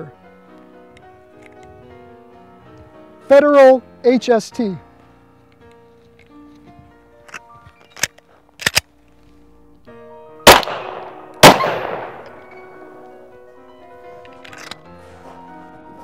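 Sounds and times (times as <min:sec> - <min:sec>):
background music: 0:00.0 - 0:16.0
pistol metallic clicks: 0:07.2 - 0:08.9, 0:10.5 - 0:13.2, 0:14.3 - 0:14.8
pistol shots echoing: 0:10.4 - 0:13.2.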